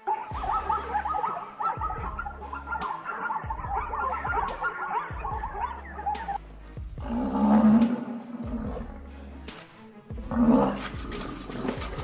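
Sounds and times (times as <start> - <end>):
deep animal calls: 0.0 - 6.4, 7.0 - 9.0
background music: 0.0 - 12.0.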